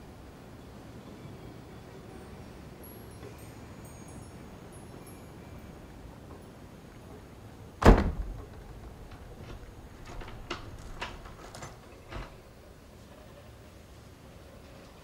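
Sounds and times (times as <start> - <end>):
soft thump: 7.8 - 8.9
door shutting with thud: 7.8 - 12.6
light clicks and knocks: 7.8 - 12.8.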